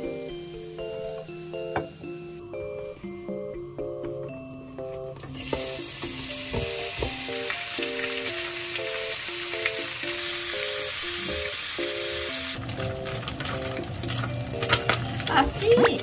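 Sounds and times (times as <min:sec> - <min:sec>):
pork sizzling in hot oil: 0:05.2 - 0:16.0.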